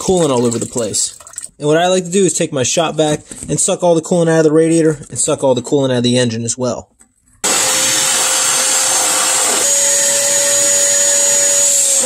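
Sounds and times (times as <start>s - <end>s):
shop vac running: 7.4s - 12.0s.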